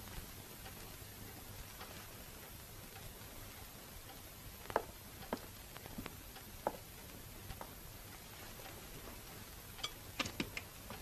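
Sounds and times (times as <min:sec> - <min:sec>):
steady hiss: 0:00.0 - 0:11.0.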